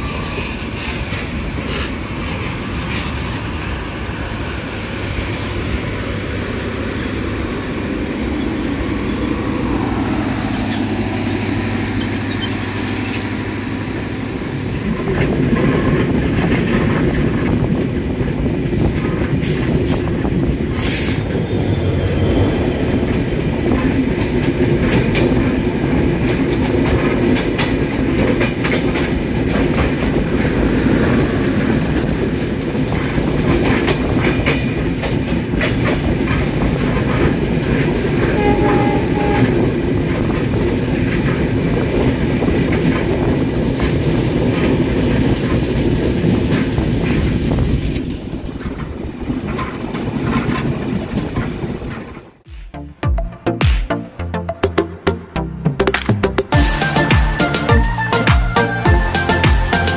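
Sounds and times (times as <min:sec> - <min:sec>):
train wheels rumbling on rail: 0:00.0 - 0:52.5
wheels clacking over rail joints: 0:22.8 - 0:52.4.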